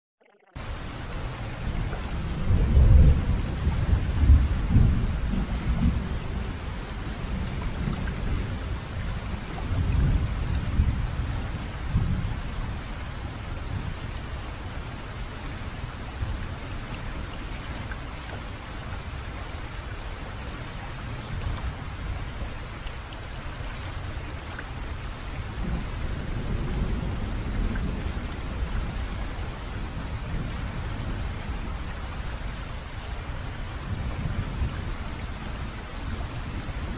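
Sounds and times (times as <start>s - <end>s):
heavy rain: 0.6s - 36.9s
thunder rolling: 1.3s - 8.6s.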